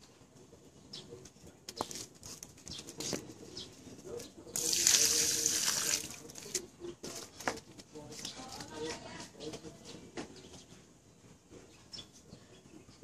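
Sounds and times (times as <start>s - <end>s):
water splashing into puddle: 4.6s - 6.5s.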